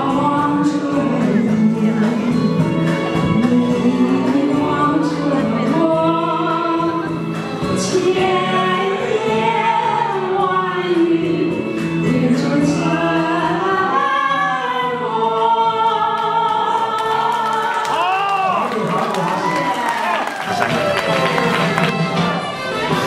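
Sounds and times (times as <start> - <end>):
woman singing: 0.0 - 18.0.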